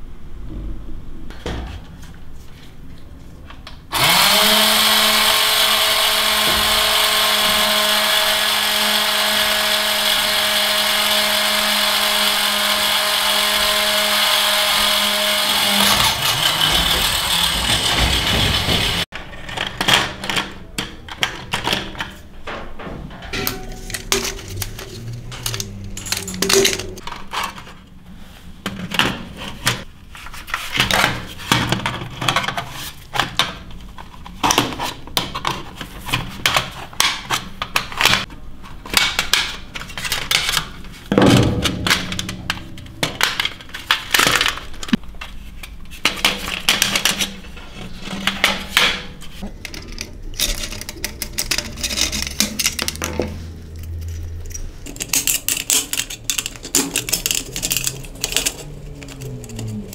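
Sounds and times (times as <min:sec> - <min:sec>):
screwdriver clicking on metal parts: 0:53.8 - 0:59.9.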